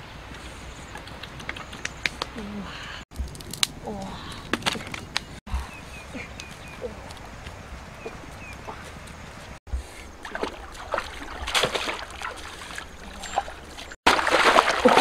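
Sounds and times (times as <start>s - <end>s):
water splashing in stream: 10.1s - 15.0s.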